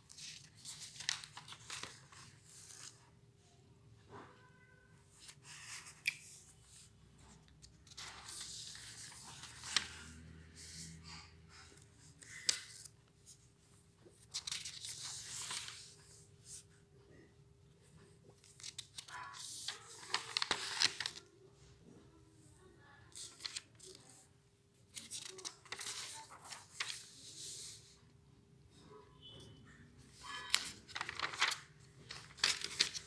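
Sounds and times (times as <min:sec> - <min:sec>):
paper pages turning: 0:00.0 - 0:03.0, 0:05.1 - 0:11.2, 0:12.0 - 0:13.4, 0:14.1 - 0:16.7, 0:18.3 - 0:21.3, 0:23.1 - 0:24.2, 0:24.9 - 0:27.9, 0:30.1 - 0:33.0.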